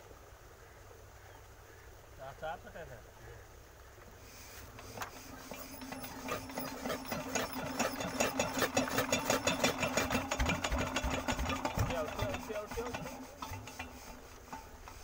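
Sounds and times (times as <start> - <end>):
diesel pump engine knocking: 5.7 - 15.0.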